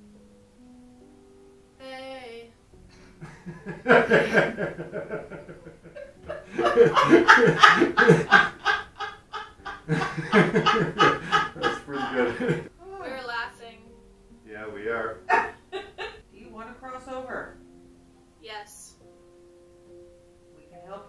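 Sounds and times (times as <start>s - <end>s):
people laughing hard: 3.2s - 12.7s, 15.3s - 16.2s.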